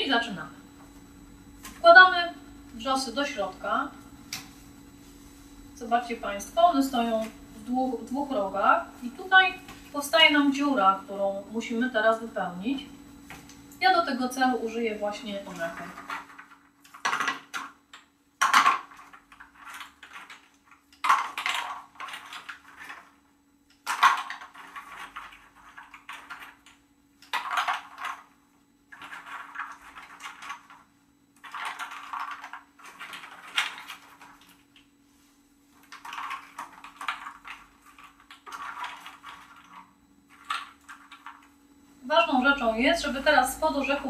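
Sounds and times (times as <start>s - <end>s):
walnuts clattering: 15.7s - 23.1s, 23.7s - 28.3s, 28.9s - 30.8s, 31.4s - 34.8s, 35.8s - 41.5s.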